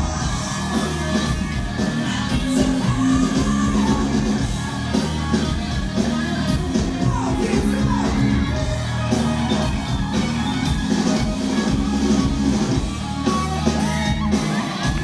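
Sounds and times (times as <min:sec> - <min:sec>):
man singing: 0:00.0 - 0:04.4, 0:06.5 - 0:09.2
bass: 0:00.0 - 0:15.0
drums: 0:00.0 - 0:15.0
electric guitar: 0:00.0 - 0:15.0.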